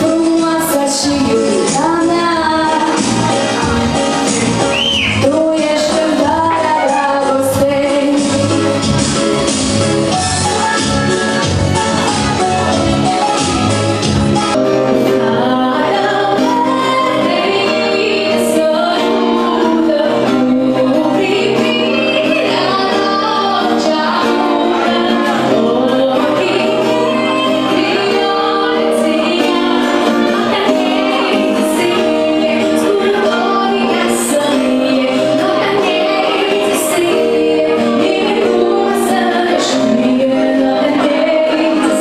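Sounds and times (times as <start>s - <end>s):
woman singing into a microphone: 0.0s - 13.5s, 14.7s - 42.0s
instrumental accompaniment: 0.0s - 42.0s
bass line: 1.2s - 17.1s.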